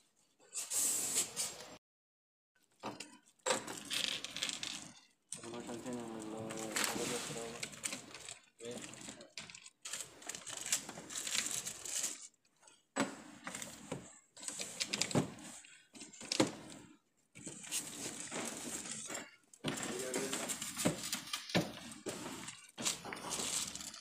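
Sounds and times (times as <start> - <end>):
plastic sheeting crinkling: 5.5 - 7.7.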